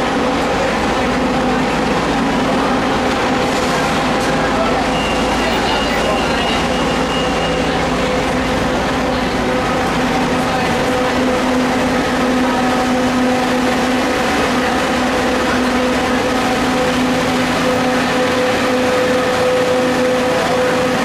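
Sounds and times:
bus engine idling: 0:00.0 - 0:21.0.

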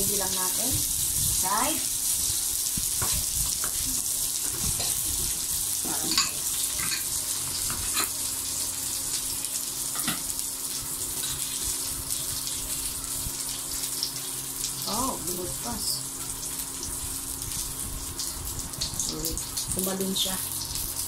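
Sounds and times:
food cooking hiss: 0:00.0 - 0:21.0.

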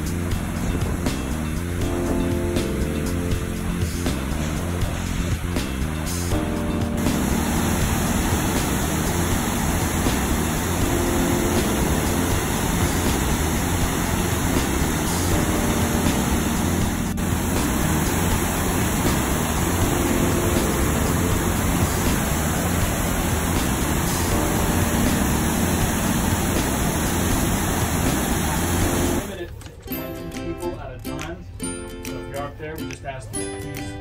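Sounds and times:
engine rumble: 0:00.0 - 0:29.6
wind and water rushing: 0:07.0 - 0:29.3.

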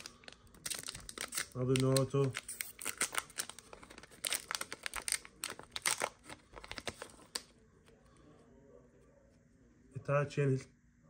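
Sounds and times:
foil pack tearing and crinkling: 0:00.0 - 0:07.4.

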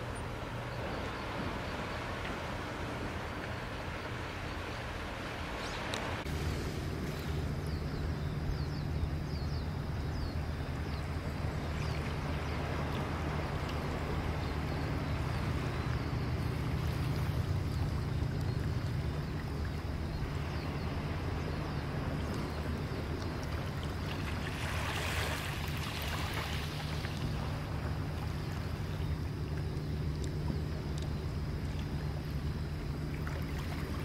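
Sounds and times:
steady low rumble: 0:00.0 - 0:34.0
waves lapping on pebble beach: 0:23.2 - 0:28.0.

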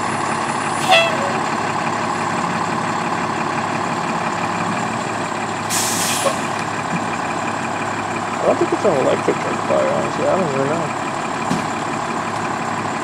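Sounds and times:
fire engine idling: 0:00.0 - 0:13.0
short hiss: 0:05.7 - 0:06.4.

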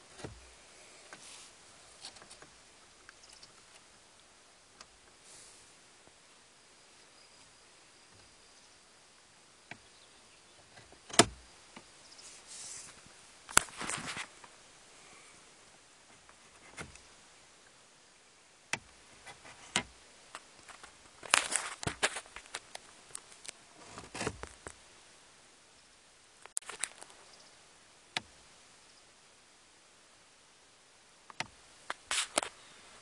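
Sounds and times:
rustling: 0:00.0 - 0:06.3, 0:10.6 - 0:17.2, 0:18.8 - 0:24.8, 0:26.4 - 0:27.3, 0:31.3 - 0:33.0
hard plastic clicks and knocks: 0:10.8 - 0:11.9.

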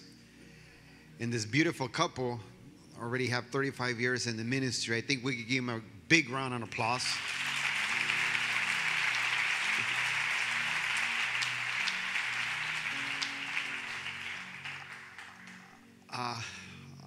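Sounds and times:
soft music of sustained chords: 0:00.0 - 0:17.0
congregation applauding: 0:07.0 - 0:16.0.

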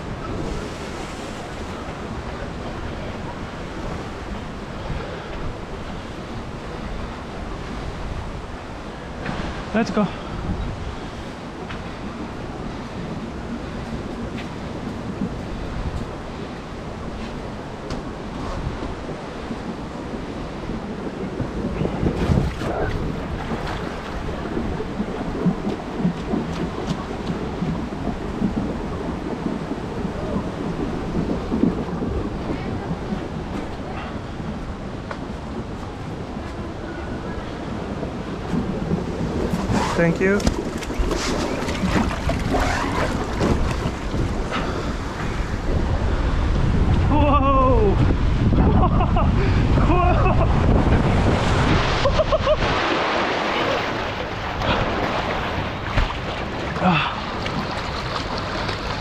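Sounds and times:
wind buffeting microphone: 0:00.0 - 0:59.0
water rushing down a slide: 0:38.4 - 0:59.0
splash into pool: 0:51.5 - 0:59.0.

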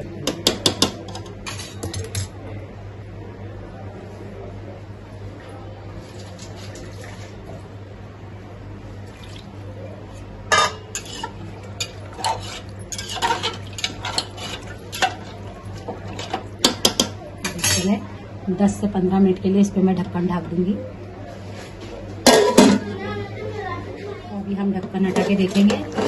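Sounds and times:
ladle scraping metal pot: 0:10.5 - 0:15.4.

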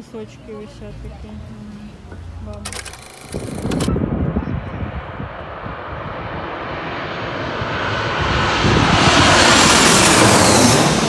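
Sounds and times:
airplane flying low overhead: 0:03.4 - 0:11.0.

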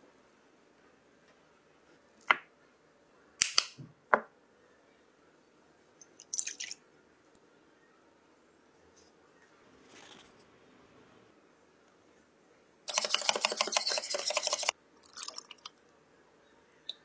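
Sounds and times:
milk pouring into glass bowl: 0:15.0 - 0:15.8.

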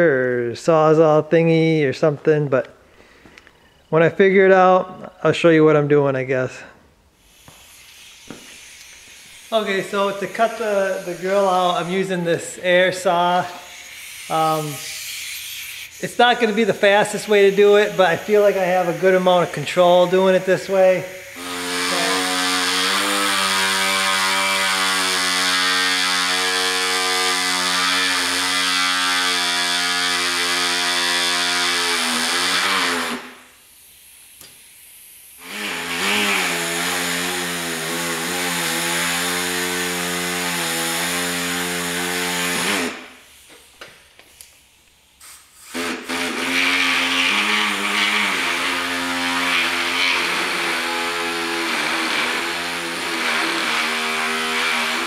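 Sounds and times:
pneumatic air saw buzzing: 0:07.1 - 0:55.0.

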